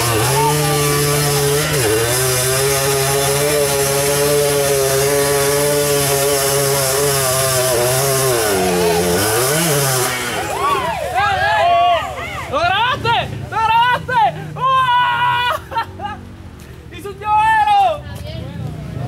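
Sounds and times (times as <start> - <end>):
atv engine revving: 0.0 - 13.6.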